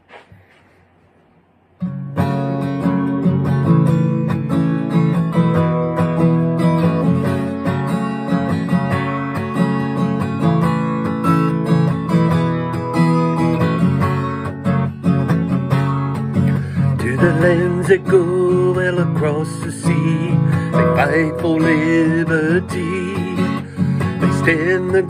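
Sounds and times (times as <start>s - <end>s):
acoustic guitar strumming: 1.8s - 25.0s.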